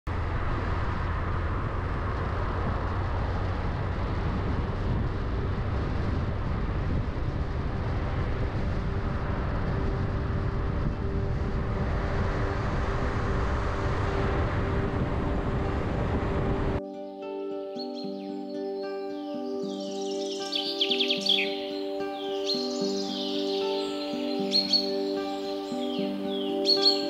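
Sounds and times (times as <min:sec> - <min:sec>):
car engine and road noise: 0:00.0 - 0:16.8.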